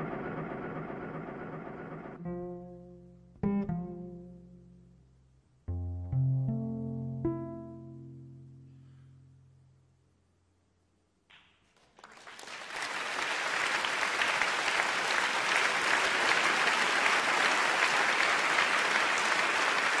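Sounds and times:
audience applauding: 11.8s - 20.0s.

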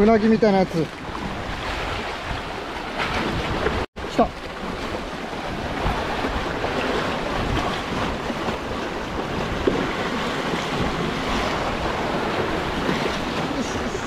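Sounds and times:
sea waves breaking: 0.0s - 14.0s
wind buffeting microphone: 0.0s - 14.0s.

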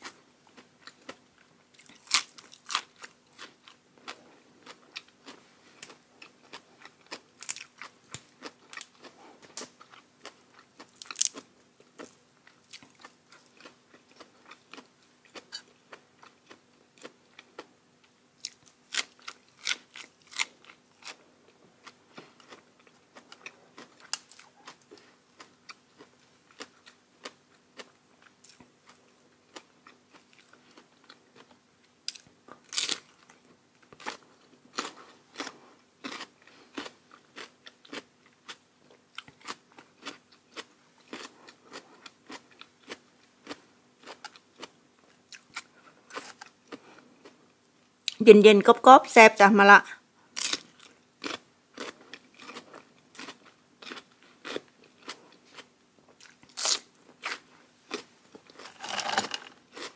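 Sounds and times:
faint steady hum: 0.0s - 59.9s
crunchy bites: 1.8s - 17.7s, 18.4s - 21.2s, 29.5s - 33.4s, 34.0s - 38.6s, 39.2s - 44.7s, 50.4s - 59.9s.

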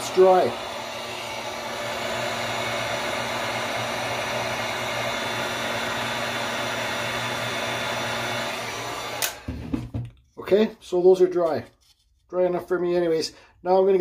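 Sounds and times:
heat gun blowing air: 0.0s - 9.7s.

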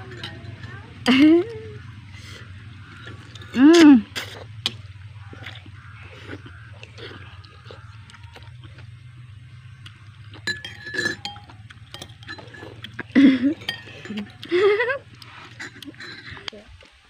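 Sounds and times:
spoons clinking on ceramic bowls: 0.0s - 1.6s, 10.1s - 16.5s.

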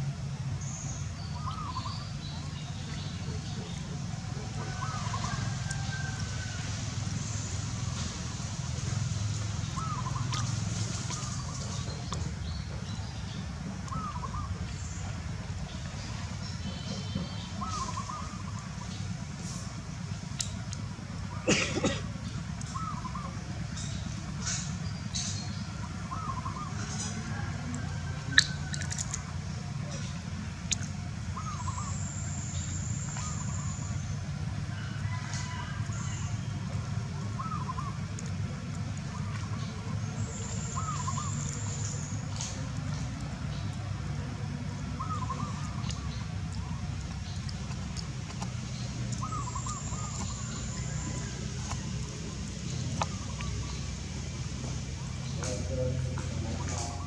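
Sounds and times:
steady low rumble: 35.8s - 57.0s
bird chirps: 39.1s - 43.8s, 45.0s - 54.0s.

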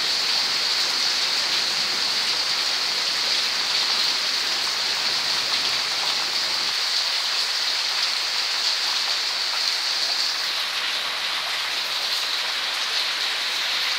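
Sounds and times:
steady rain: 0.0s - 13.9s.

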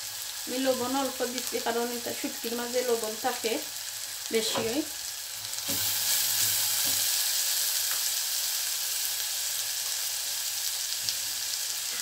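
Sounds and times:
onions sizzling in oil: 0.0s - 12.0s
spatula stirring onions: 3.8s - 8.5s.

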